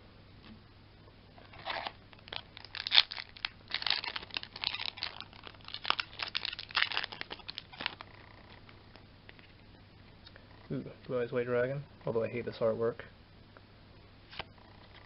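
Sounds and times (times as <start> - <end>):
foil wrapper tearing and crinkling: 1.6 - 8.0.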